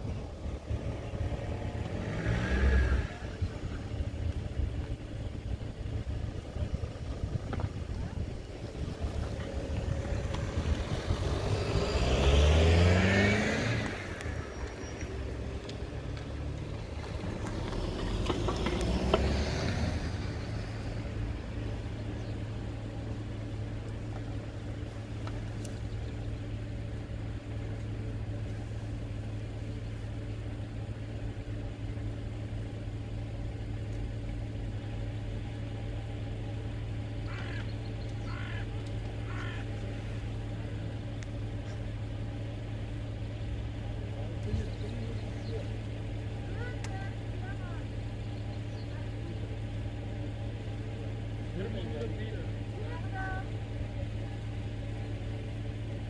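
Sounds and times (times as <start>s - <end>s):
vehicle passing: 0.0s - 3.9s, 8.6s - 22.0s
car accelerating: 0.0s - 56.0s
crow cawing: 37.2s - 39.8s.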